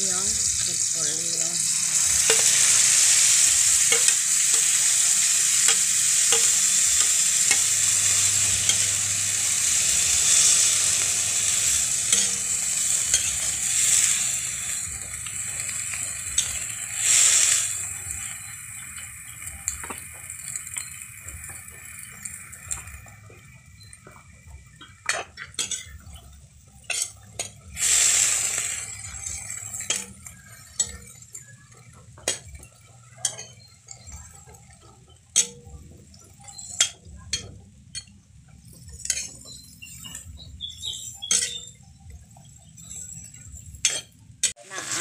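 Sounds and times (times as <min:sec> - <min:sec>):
vegetables stir-frying: 0:00.0 - 0:45.0
metal spatula scraping a wok: 0:01.0 - 0:18.5, 0:25.0 - 0:31.2, 0:42.7 - 0:45.0.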